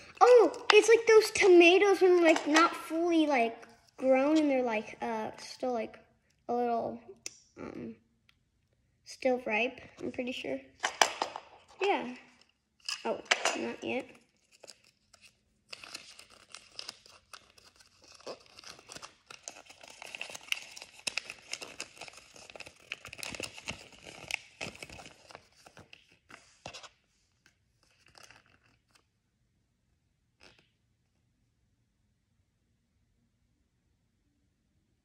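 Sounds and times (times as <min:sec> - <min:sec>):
wrapper tearing and crackling: 0:00.0 - 0:01.3, 0:10.8 - 0:26.3, 0:27.8 - 0:29.0.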